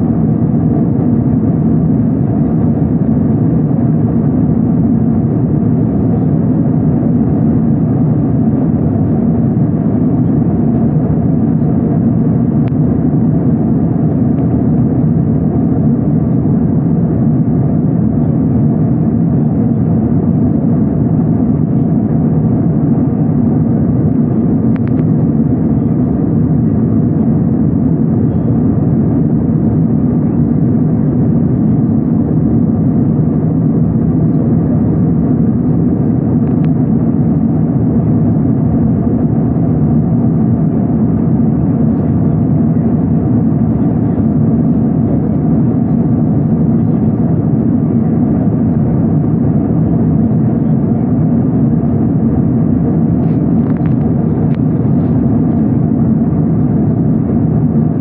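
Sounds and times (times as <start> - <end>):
airliner cabin engine rush: 0.0 - 58.0.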